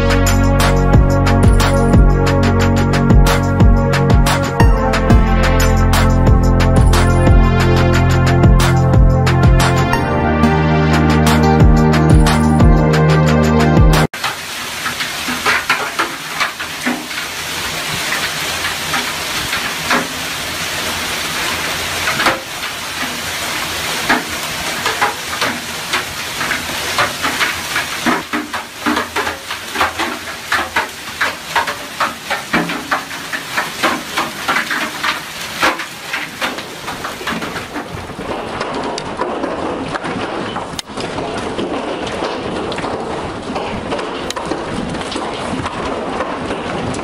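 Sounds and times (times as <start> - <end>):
music: 0.0 - 14.1
hailstones clicking on hard surfaces: 14.2 - 20.3, 22.0 - 47.0
hailstones pelting down: 14.2 - 47.0.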